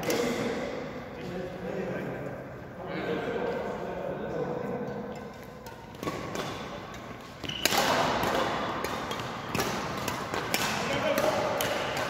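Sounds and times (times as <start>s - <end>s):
rackets hitting shuttlecock: 0.0s - 0.6s, 5.0s - 12.0s.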